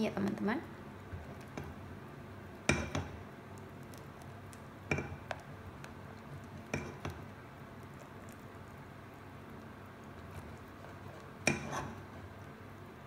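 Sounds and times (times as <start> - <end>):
spatula stirring thick paste: 1.0 - 1.9, 2.6 - 12.7
spatula knocking on pot: 2.7 - 3.2.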